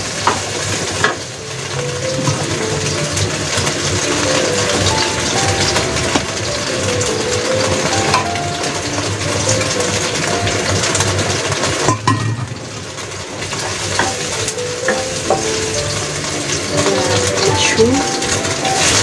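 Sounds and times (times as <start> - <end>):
garlic sizzling in oil: 0.0 - 19.0.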